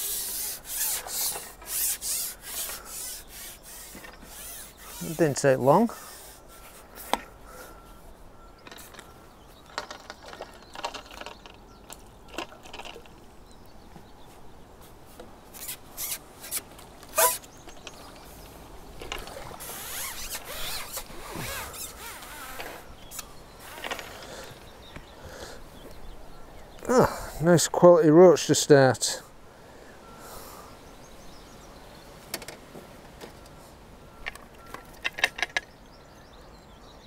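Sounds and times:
fishing tackle clicking and rustling: 8.6s - 13.6s, 15.6s - 24.7s, 34.2s - 35.7s.

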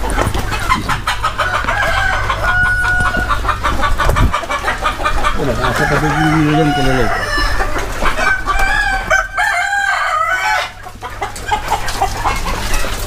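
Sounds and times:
hens clucking: 0.0s - 13.0s
roosters crowing: 0.0s - 13.0s.

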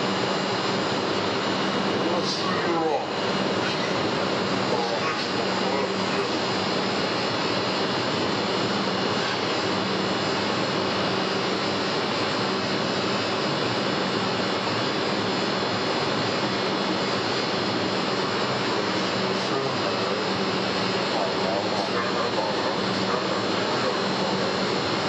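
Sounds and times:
industrial machinery roar: 0.0s - 25.0s.

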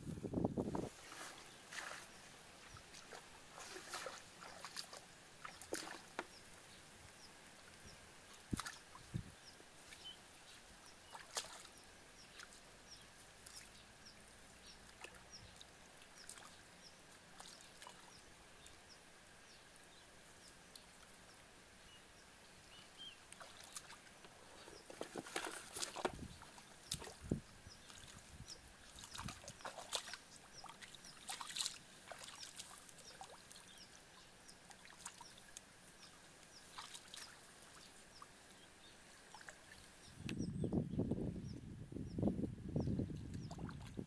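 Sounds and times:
splashing in shallow muddy water: 0.7s - 6.7s, 8.3s - 18.8s, 23.1s - 38.4s, 39.0s - 40.0s, 43.0s - 44.0s.

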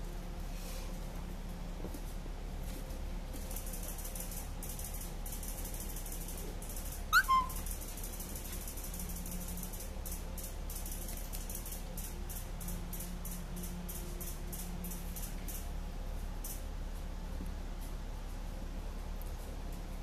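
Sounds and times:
puppy squeaking: 7.1s - 7.6s.

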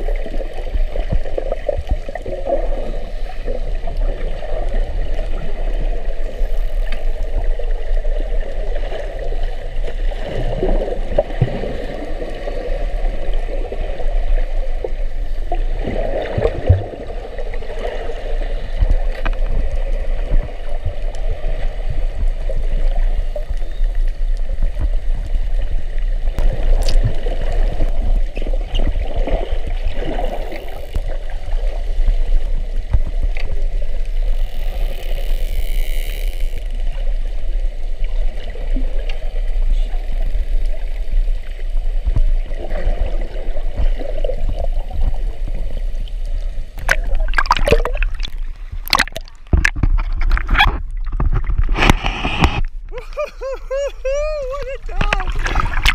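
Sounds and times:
muffled underwater rumble: 0.0s - 55.9s
water splashing and sloshing: 0.0s - 55.9s
scattered ticks: 33.4s - 36.8s.

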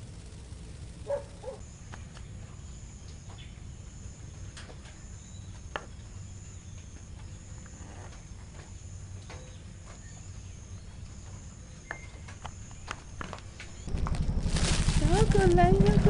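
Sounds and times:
steady low rumble: 0.0s - 7.4s, 12.6s - 16.0s
steady high whine: 0.0s - 16.0s.

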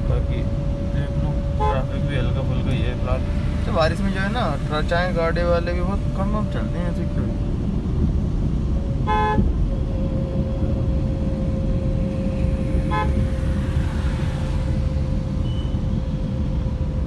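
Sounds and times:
car cabin road and engine noise: 0.0s - 17.0s
car horn toots: 9.0s - 9.6s, 12.7s - 13.6s.

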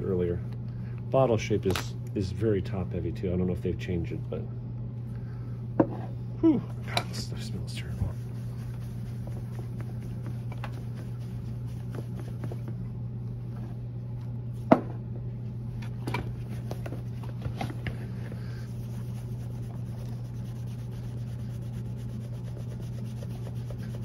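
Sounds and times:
steady low hum: 0.0s - 24.0s
rag rubbing on leather: 7.4s - 12.7s, 18.1s - 24.0s.

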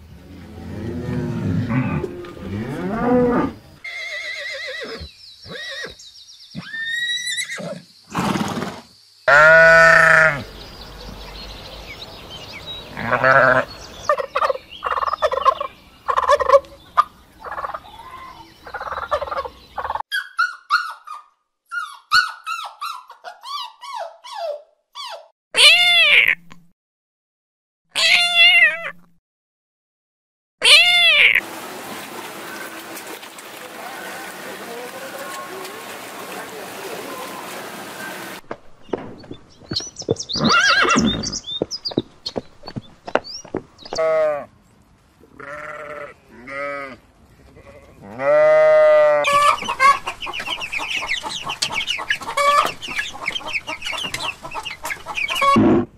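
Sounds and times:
loud drawn-out animal call: 6.6s - 10.6s, 12.9s - 13.7s
turkeys gobbling: 14.1s - 18.0s, 18.6s - 21.0s, 49.3s - 55.8s
kitten meowing: 25.6s - 26.4s, 28.0s - 29.0s, 30.6s - 31.4s.

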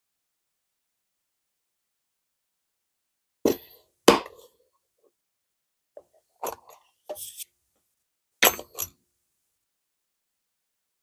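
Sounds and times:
hard objects knocking and clinking: 8.4s - 9.0s.

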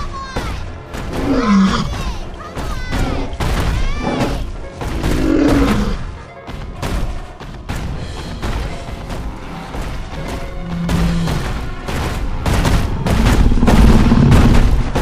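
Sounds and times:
dramatic music: 0.0s - 15.0s
mammoth roaring: 1.2s - 2.0s, 4.0s - 6.0s
heavy booms and crashes: 6.7s - 15.0s.

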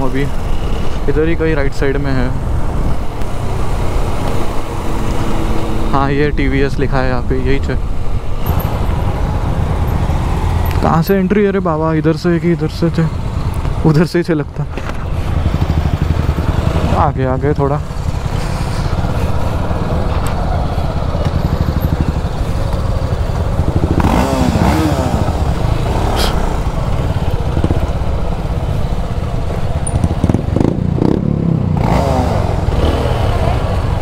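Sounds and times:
other motorcycles running nearby: 0.0s - 34.0s
motorcycle engine running slowly: 18.9s - 24.5s.

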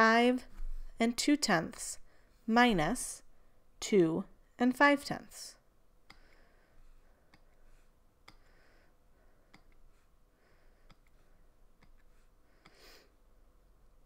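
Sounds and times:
computer mouse clicks: 6.0s - 6.4s.

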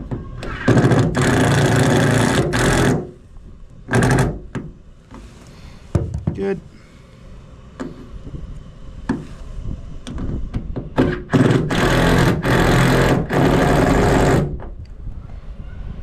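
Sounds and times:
cordless impact driver bursts: 11.0s - 14.5s.

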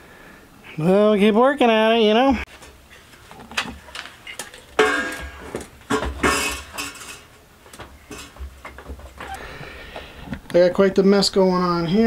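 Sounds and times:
metal clanking and rattling: 3.4s - 9.2s.

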